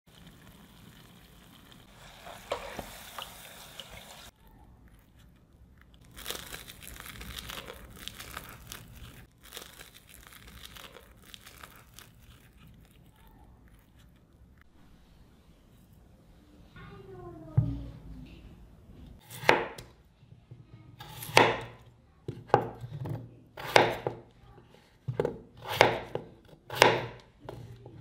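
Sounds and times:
dough sizzling in oil: 0.1s - 4.3s
crisp crust tearing: 4.9s - 14.4s.

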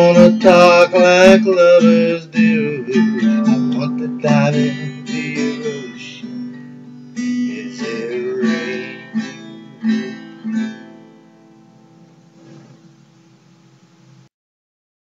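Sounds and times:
acoustic guitar chords: 0.0s - 14.3s.

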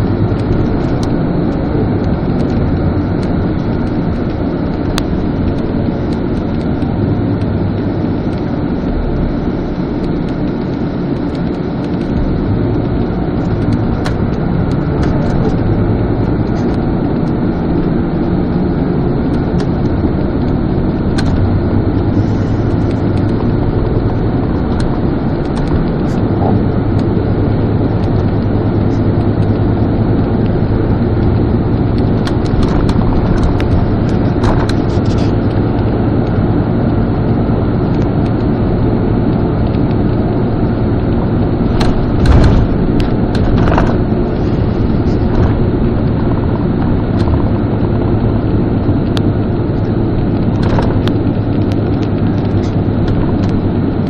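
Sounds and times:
vehicle engine and road noise: 0.0s - 54.0s.

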